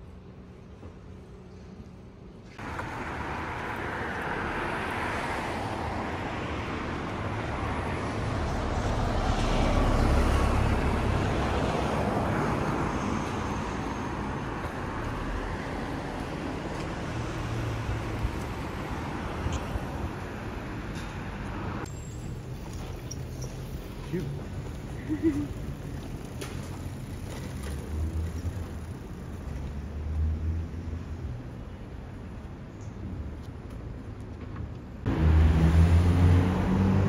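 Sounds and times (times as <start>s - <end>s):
street traffic hum: 0.0s - 37.0s
car passing close: 35.1s - 37.0s.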